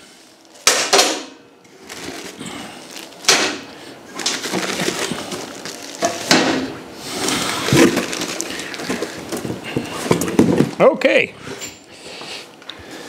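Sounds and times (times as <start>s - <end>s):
plastic bags and bubble wrap rustling: 0.0s - 0.6s, 1.6s - 10.9s
sharp plastic crackle: 0.2s - 10.7s.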